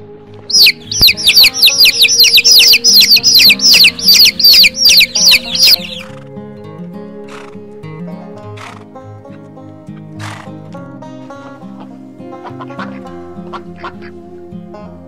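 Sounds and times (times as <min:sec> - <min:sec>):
background music: 0:00.0 - 0:15.0
chicks peeping: 0:00.5 - 0:06.1.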